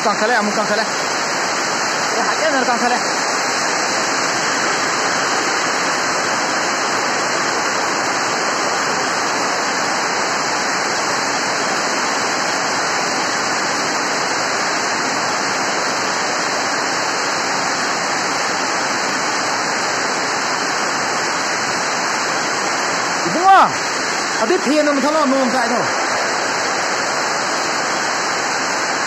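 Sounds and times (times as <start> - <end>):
heavy rain falling: 0.0 - 29.0.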